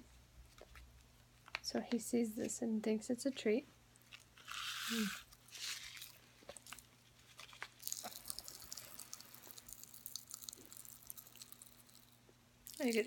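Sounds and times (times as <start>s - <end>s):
popping candy crackling: 4.1s - 13.0s
candy hissing as tipped in: 4.4s - 6.1s.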